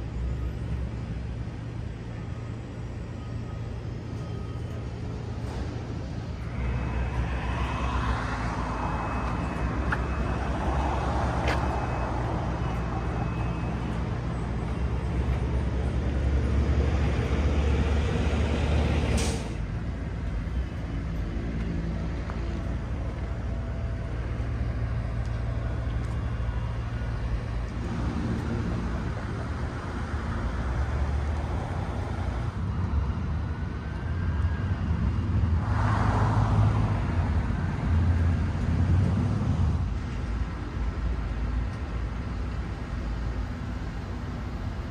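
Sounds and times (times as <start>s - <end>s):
traffic engines rumbling: 0.0s - 44.9s
vehicle passing: 5.9s - 19.7s, 34.6s - 40.0s.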